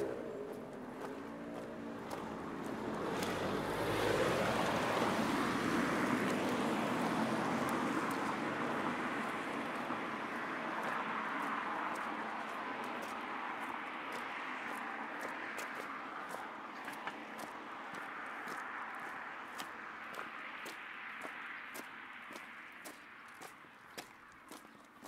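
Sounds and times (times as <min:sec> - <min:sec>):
car passing: 0:00.0 - 0:24.6.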